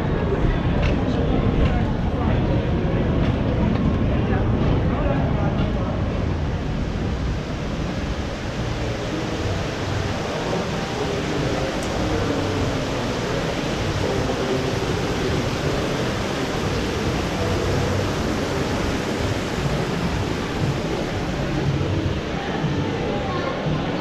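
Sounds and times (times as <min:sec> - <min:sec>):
fountain water splashing: 0:06.0 - 0:23.9.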